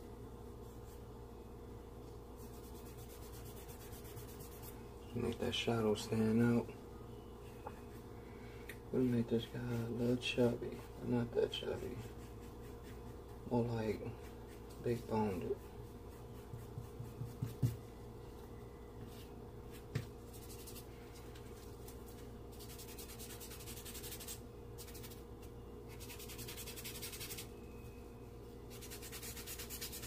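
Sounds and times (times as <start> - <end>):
charcoal scratching on paper: 2.4 - 4.7, 9.1 - 13.3, 14.2 - 17.8, 20.3 - 20.9, 22.5 - 25.2, 25.9 - 27.5, 28.7 - 30.0.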